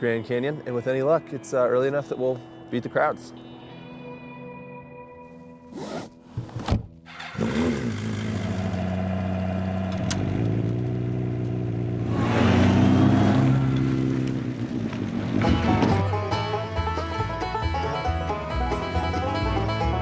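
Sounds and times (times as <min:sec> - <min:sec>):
motorcycle engine idling and revving: 0:07.1 - 0:16.5.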